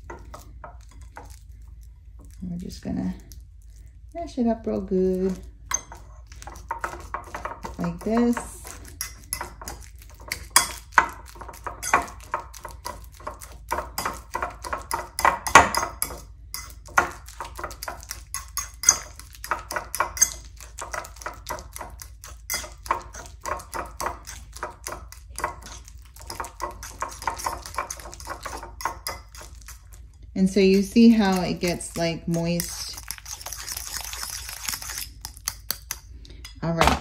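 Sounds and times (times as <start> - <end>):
fork clinking and scraping bowl: 5.7 - 36.0.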